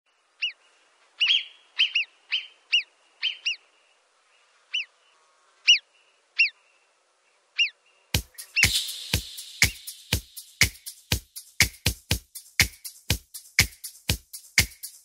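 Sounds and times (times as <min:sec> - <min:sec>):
bird chirping: 0:00.4 - 0:11.7.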